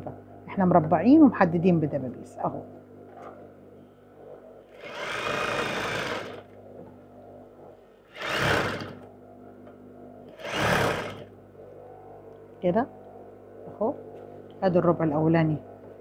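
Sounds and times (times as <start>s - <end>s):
faint motor hum: 0.0s - 16.0s
sewing machine stitching: 4.8s - 6.4s, 8.1s - 9.0s, 10.4s - 11.3s.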